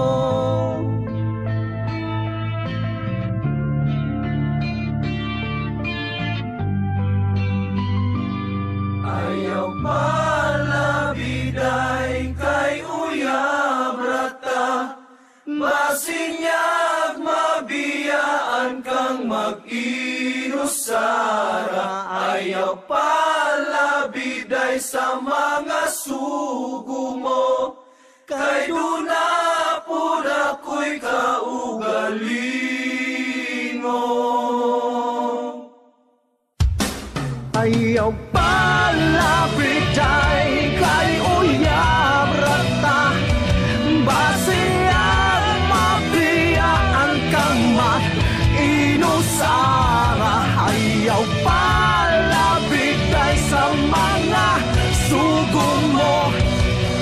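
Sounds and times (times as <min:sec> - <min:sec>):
person singing: 0:00.0 - 0:01.2, 0:09.0 - 0:17.9, 0:37.6 - 0:56.6
sung vocals: 0:00.0 - 0:02.0, 0:09.0 - 0:35.8, 0:37.5 - 0:57.0
low bass notes: 0:00.0 - 0:12.8, 0:37.5 - 0:57.0
band playing: 0:36.7 - 0:57.0.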